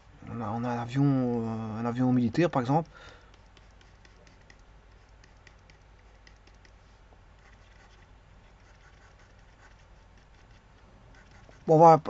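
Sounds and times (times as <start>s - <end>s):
low steady hum: 0.0s - 12.0s
computer mouse clicks: 3.3s - 6.8s.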